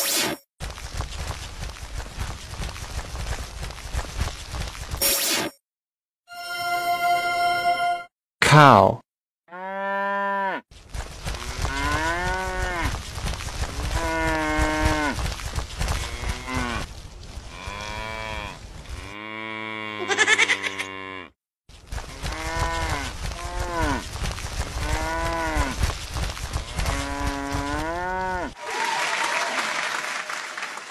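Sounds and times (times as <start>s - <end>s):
cow mooing: 9.5s - 10.6s, 26.8s - 28.5s
applause: 28.6s - 30.9s.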